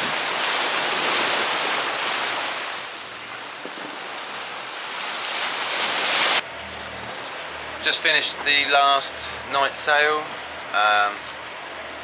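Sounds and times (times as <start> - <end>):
water rushing past yacht hull: 0.0 - 12.0
wind buffeting microphone: 3.0 - 4.6.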